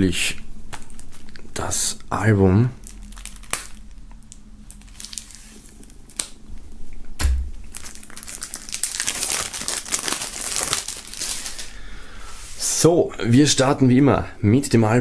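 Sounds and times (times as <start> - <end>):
plastic wrap crinkling: 0.7 - 11.8.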